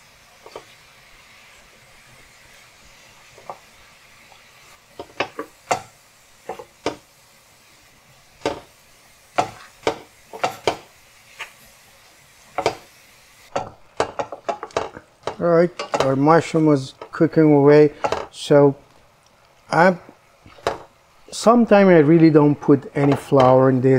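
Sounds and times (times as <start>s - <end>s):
faint sizzle: 0.0s - 23.9s
wooden spoon clacking on skillet: 0.4s - 0.8s, 3.2s - 7.1s, 8.4s - 11.6s, 12.5s - 12.9s, 13.5s - 16.2s, 18.0s - 18.3s, 20.5s - 20.9s, 22.9s - 23.6s.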